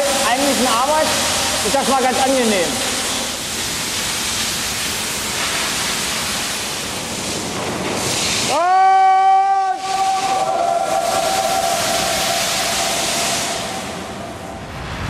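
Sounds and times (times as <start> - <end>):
high-pressure water jet hissing: 0.0 - 14.8
loud whistling tone: 8.5 - 14.7.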